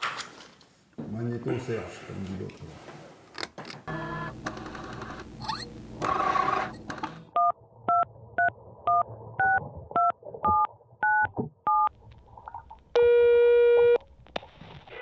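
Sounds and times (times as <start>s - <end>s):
touch-tone dialling beeps: 7.4s - 11.9s.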